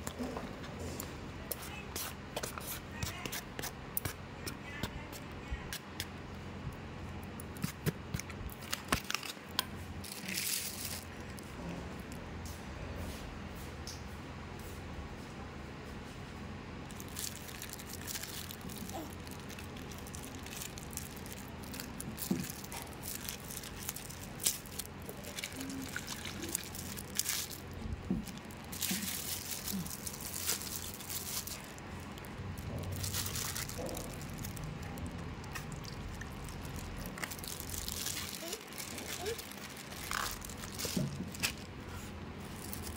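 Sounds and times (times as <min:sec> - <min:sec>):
steady low hum: 0:00.0 - 0:42.9
plastic bag rustling: 0:07.7 - 0:11.5, 0:16.8 - 0:42.9
soup pouring: 0:35.3 - 0:37.9.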